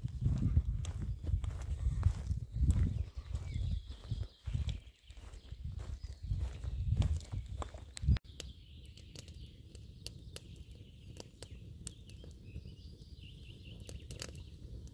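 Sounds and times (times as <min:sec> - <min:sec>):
birds chirping faintly: 0:00.3 - 0:14.9
campfire crackling: 0:07.2 - 0:14.9.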